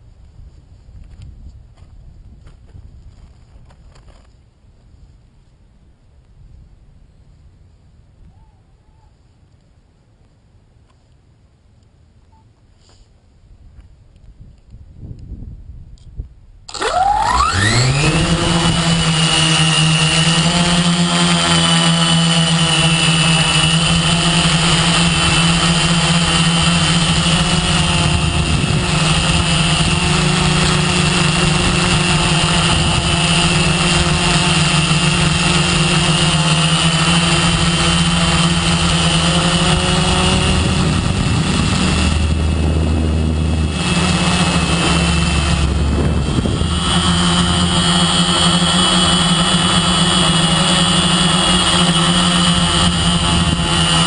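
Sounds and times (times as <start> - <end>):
drone motors buzzing: 16.7 - 54.0
low rumbles: 16.7 - 54.0.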